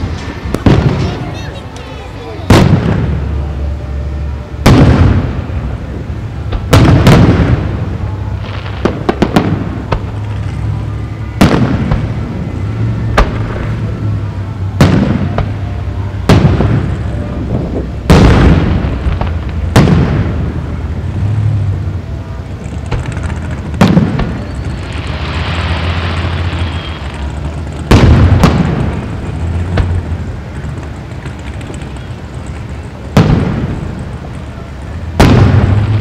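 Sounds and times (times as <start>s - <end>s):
fireworks booming with echo: 0.0s - 36.0s
small firework pops: 22.6s - 25.3s.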